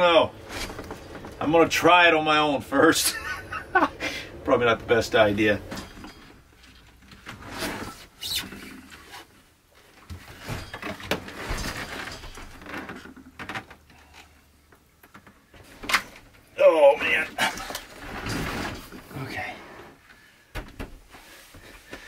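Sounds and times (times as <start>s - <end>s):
knocks and bumps: 0.0s - 2.2s, 9.8s - 13.8s, 20.5s - 22.0s
scraping and sliding: 2.8s - 9.4s, 17.0s - 20.0s.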